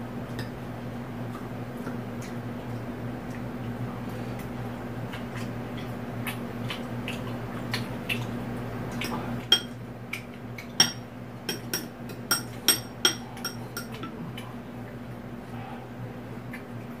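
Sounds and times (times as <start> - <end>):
steady low hum: 0.0 - 17.0
utensils clinking against dishes: 10.8 - 14.2.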